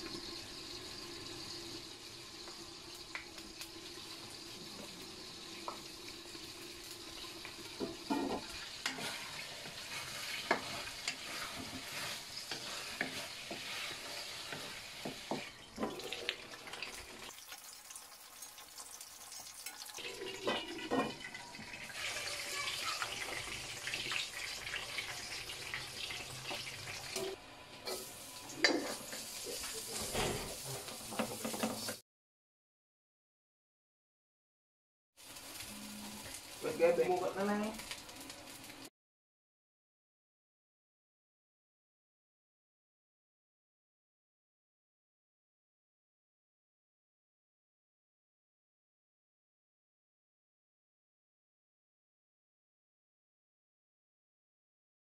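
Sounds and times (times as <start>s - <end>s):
sausages sizzling in a wok: 0.0s - 32.0s, 35.2s - 38.9s
wooden spatula scraping a pan: 7.7s - 16.2s, 27.9s - 32.0s.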